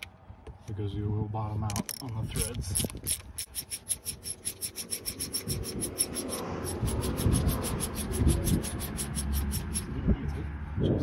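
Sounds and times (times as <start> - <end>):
hand ratchet clicking: 1.7 - 9.9.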